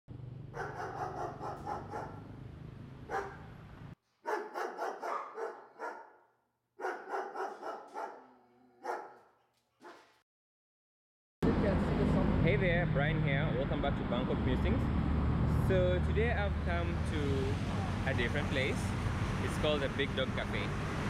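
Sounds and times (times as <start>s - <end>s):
dog barking: 0.5s - 2.2s, 3.1s - 3.5s, 4.2s - 10.2s.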